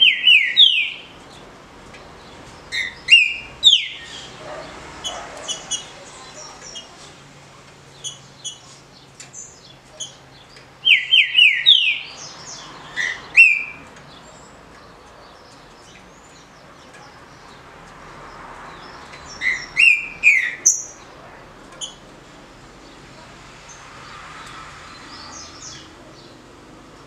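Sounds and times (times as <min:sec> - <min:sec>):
bird singing whistled song: 0:00.0 - 0:01.1, 0:02.8 - 0:04.3, 0:10.8 - 0:12.2, 0:13.0 - 0:13.8, 0:19.4 - 0:21.0.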